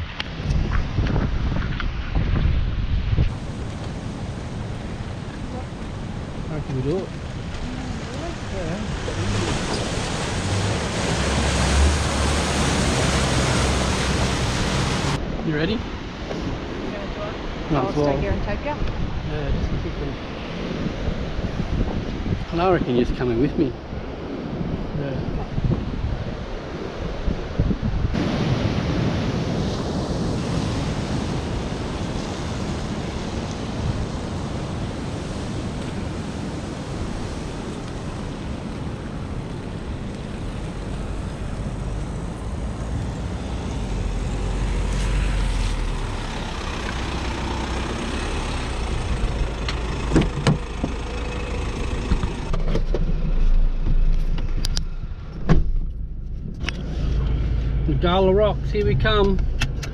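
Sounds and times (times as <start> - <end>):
distant surf: 0.0 - 59.9
wind buffeting microphone: 0.0 - 59.9
muffled car engine running: 45.9 - 59.9.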